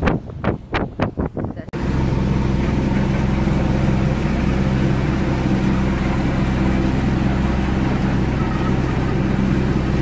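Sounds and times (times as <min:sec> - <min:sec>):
wind and water rushing: 0:00.0 - 0:10.0
boat engine droning: 0:01.7 - 0:10.0.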